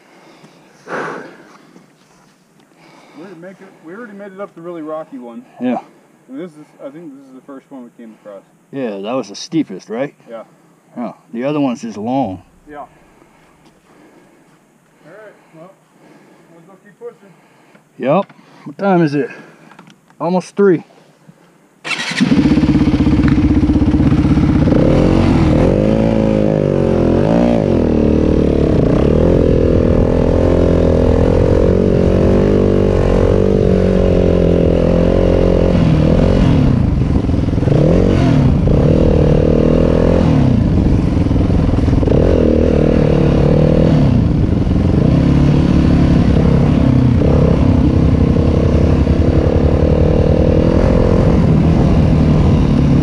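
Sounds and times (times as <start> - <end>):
dirt bike engine revving: 21.8 - 53.0.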